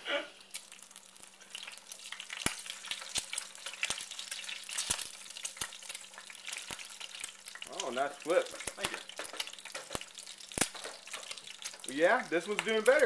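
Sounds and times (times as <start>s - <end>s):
egg sizzling in a frying pan: 0.0s - 13.0s
spatula tapping a pan: 8.8s - 11.9s.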